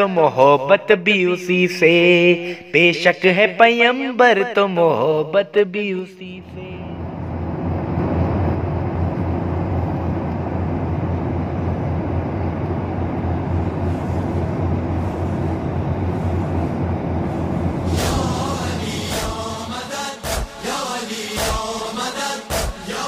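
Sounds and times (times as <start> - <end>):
jet engine drone in cabin: 6.1 - 23.0
sudden burst of noise: 17.3 - 23.0.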